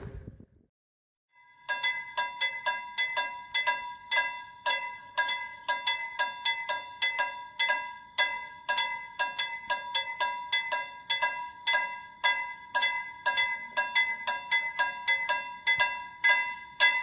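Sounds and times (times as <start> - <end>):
level crossing bell ringing: 1.5 - 17.0.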